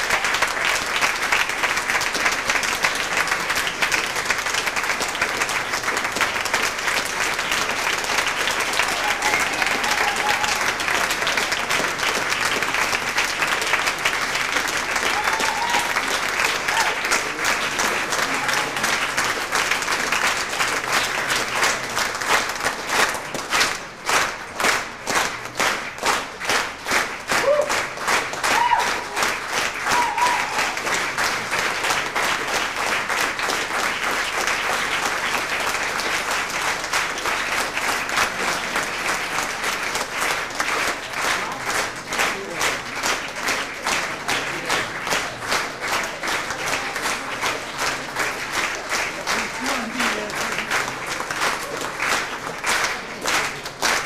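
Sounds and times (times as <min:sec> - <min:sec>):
audience applauding: 0:00.0 - 0:54.0.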